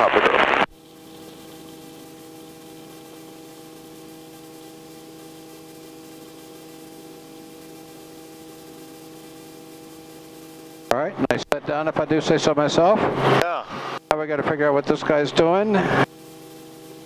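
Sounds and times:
helicopter engine and rotors humming: 0.0 - 17.0.

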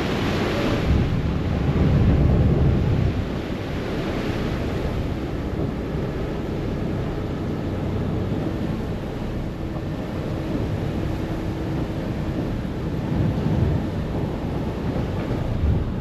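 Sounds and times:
water rushing past hull: 0.0 - 16.0
wind on microphone: 0.0 - 16.0.

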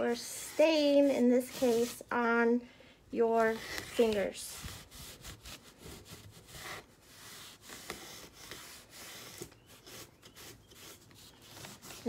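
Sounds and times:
hand rubbing wooden frame: 3.4 - 12.0.

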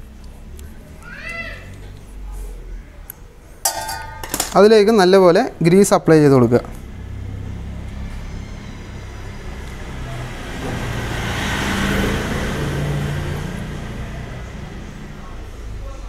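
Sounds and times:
vehicle engine rumble passing: 6.4 - 16.0.

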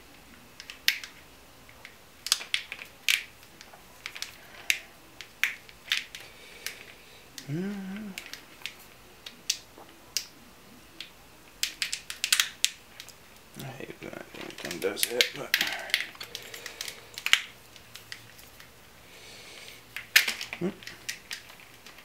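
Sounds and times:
small plastic clicks: 1.8 - 7.5, 11.0 - 13.2
person humming: 7.4 - 8.4, 20.6 - 20.9.

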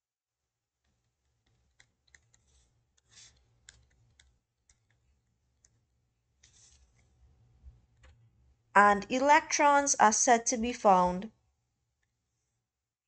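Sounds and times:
stylus tapping and scratching: 0.8 - 8.3.

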